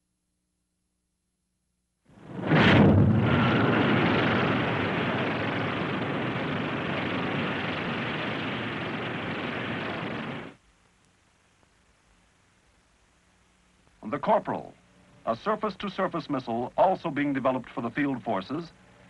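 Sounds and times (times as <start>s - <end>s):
rocket exhaust roar: 2.1s - 10.6s.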